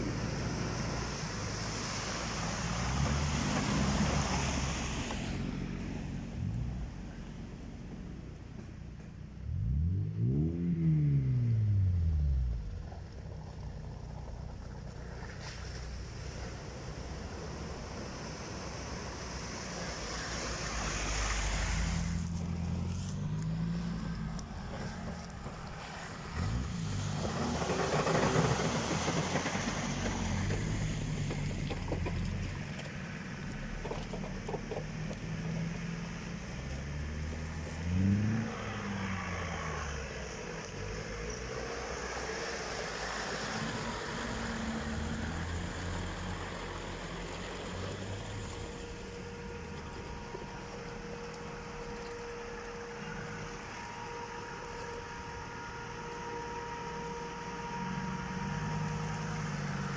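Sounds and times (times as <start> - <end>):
off-road engine revving: 9.4 - 59.9.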